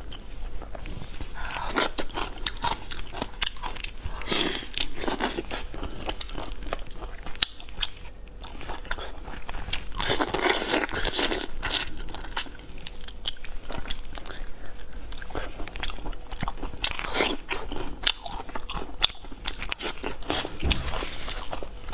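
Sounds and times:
person chewing crunchy food: 0.0s - 21.9s.

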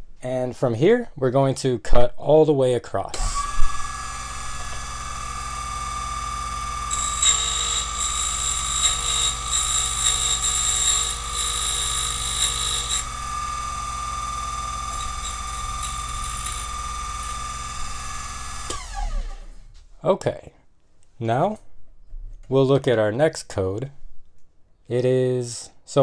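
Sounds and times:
key cutter milling metal: 3.2s - 19.3s
machine motor running: 3.2s - 19.7s.

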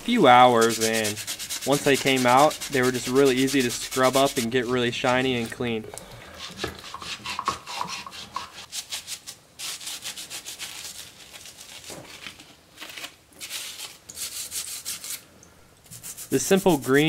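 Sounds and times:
scouring pad scrubbing metal: 0.0s - 8.7s, 15.9s - 17.0s.

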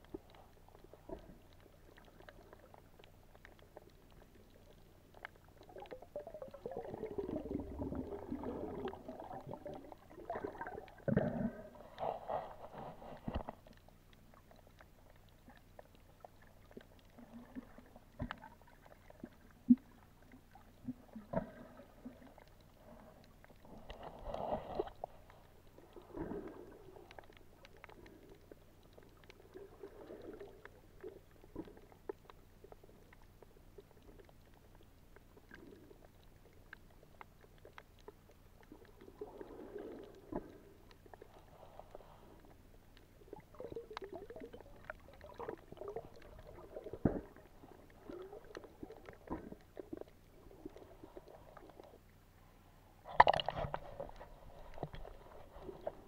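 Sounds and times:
low underwater swishing rumbles: 0.0s - 14.9s
small underwater clicks and crackles: 0.0s - 56.0s.

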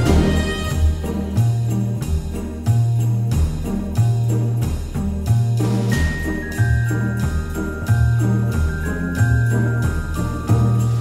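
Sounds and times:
music with beat and bass: 0.0s - 11.0s
tinkling sleigh chimes: 0.0s - 11.0s.

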